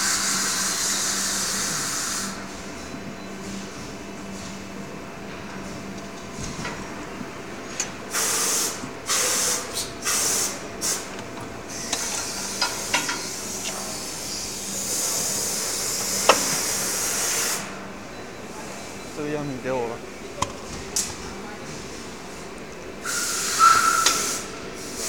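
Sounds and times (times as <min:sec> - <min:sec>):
compressed air hissing: 0:08.1 - 0:11.1, 0:23.0 - 0:25.0.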